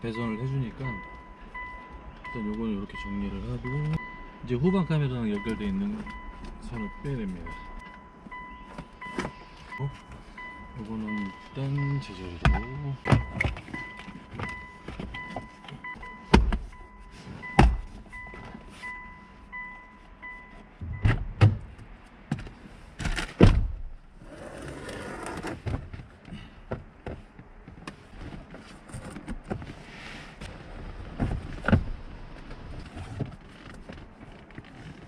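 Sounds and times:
faint electronic beeping: 0.0s - 21.1s.

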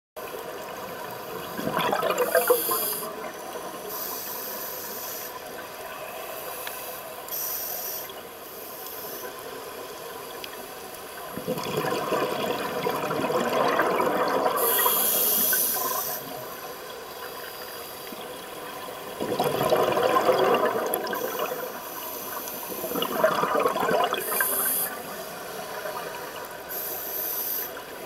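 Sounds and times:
gurgling exhaled bubbles: 1.3s - 3.2s, 11.4s - 16.0s, 19.1s - 21.8s, 22.7s - 24.8s
regulator hissing inhalations: 2.3s - 3.2s, 3.8s - 5.6s, 6.4s - 9.4s, 14.6s - 16.5s, 24.2s - 25.7s, 26.7s - 28.0s.

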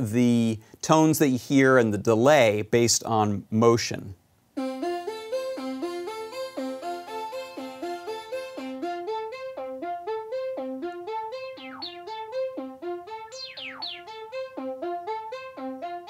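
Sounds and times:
synthesizer rising arpeggio: 4.6s - 16.0s
high falling synth sweeps: 10.4s - 15.5s.

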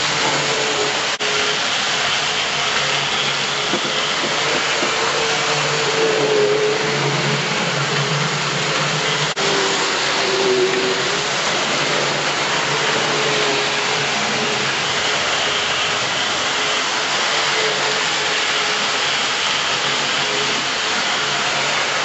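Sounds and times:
model train motor whirring: 0.0s - 22.0s.

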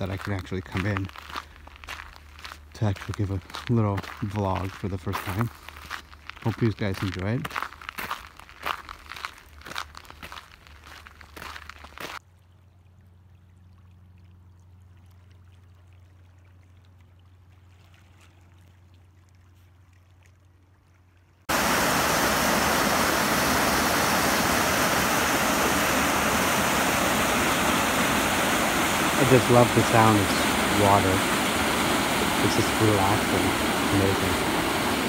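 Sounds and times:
small waves washing on shore: 21.5s - 35.0s.

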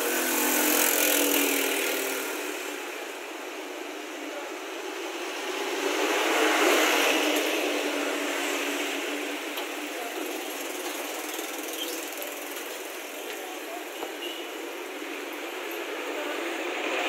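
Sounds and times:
street traffic: 0.0s - 17.0s.

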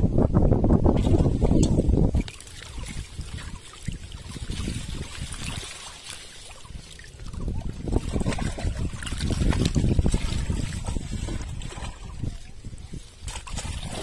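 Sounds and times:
water sloshing and splashing: 0.9s - 14.0s.

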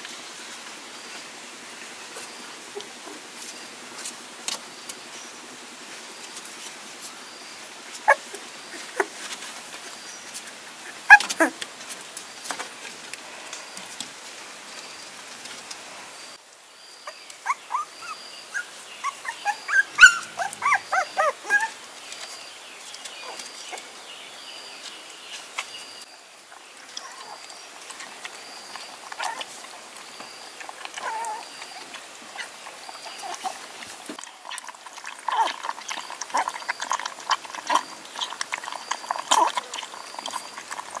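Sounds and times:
background hiss: 0.0s - 35.0s
puppies whimpering and yelping: 8.0s - 9.3s, 10.8s - 11.6s, 17.1s - 21.8s, 30.7s - 34.2s.

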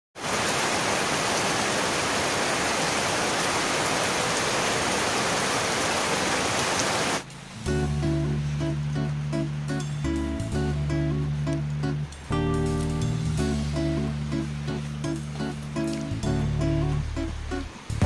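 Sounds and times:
steady downpour of rain: 0.2s - 18.0s
music with plucked notes: 7.5s - 18.0s.

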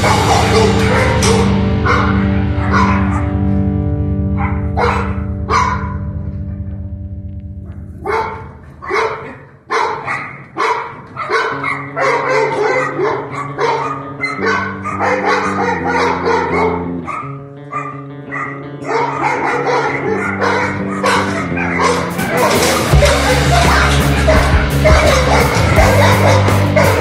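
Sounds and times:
dog barking: 0.0s - 3.6s, 4.3s - 6.2s, 7.7s - 27.0s
background music: 0.0s - 27.0s.

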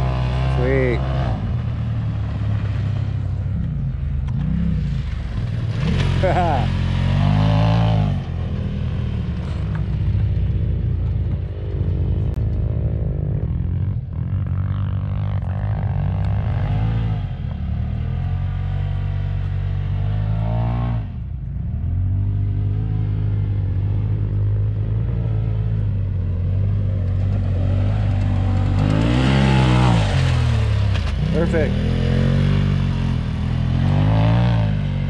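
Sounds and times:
side-by-side engine revving: 0.0s - 35.0s.

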